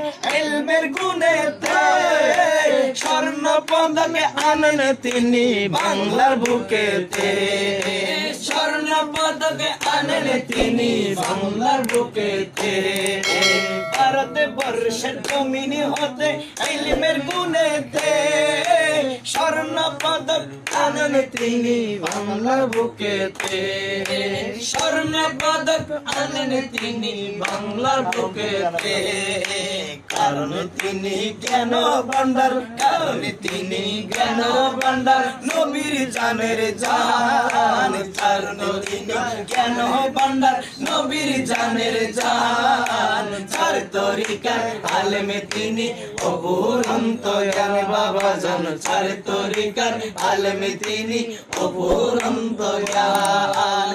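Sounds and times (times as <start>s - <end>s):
hand claps: 0.0s - 53.9s
man singing chant-like melody: 0.0s - 53.9s.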